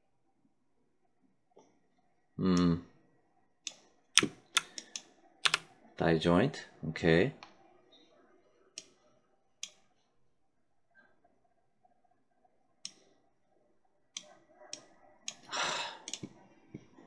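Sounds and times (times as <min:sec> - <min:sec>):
computer mouse clicks: 0:03.6 - 0:05.7, 0:09.6 - 0:09.8, 0:14.2 - 0:16.4.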